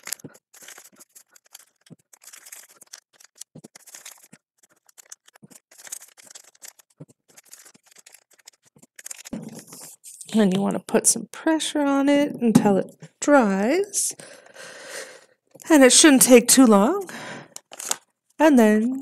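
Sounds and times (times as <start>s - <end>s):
glue stick rubbing on paper: 0.0s - 10.2s
paper scratching and rustling: 0.0s - 10.6s.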